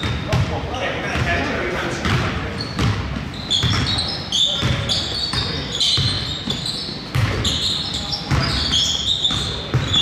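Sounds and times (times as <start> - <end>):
basketball bouncing on gym floor: 0.0 - 10.0
high-pitched squeaks: 2.6 - 10.0.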